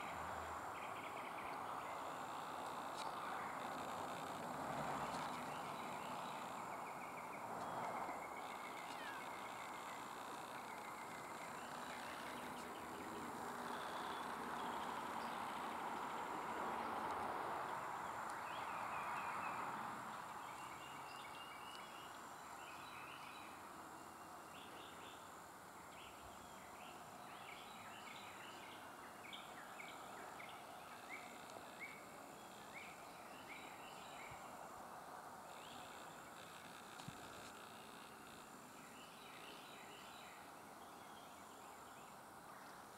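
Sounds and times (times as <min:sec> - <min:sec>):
birds chirping: 0:05.0 - 0:16.3.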